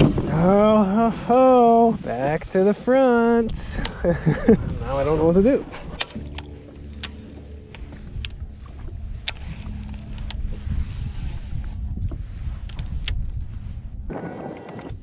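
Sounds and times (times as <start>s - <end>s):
wind buffeting microphone: 0.0s - 15.0s
water lapping against boat hull: 5.6s - 13.7s.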